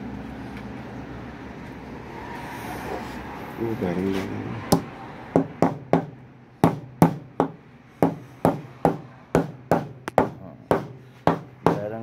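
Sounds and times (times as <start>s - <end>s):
hammer knocking bearing into plastic: 5.4s - 12.0s.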